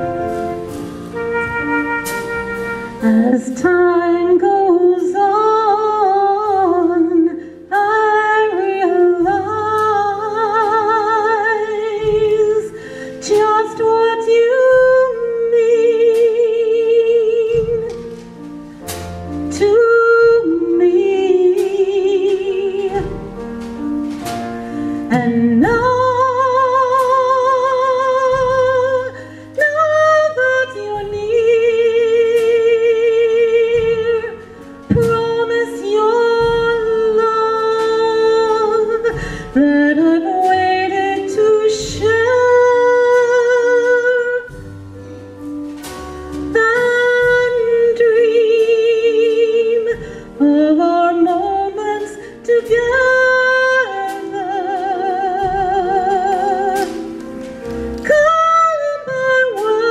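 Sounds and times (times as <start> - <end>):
piano: 0.0 - 59.9
woman singing with vibrato: 3.0 - 18.0, 19.5 - 23.4, 25.0 - 44.6, 46.5 - 57.2.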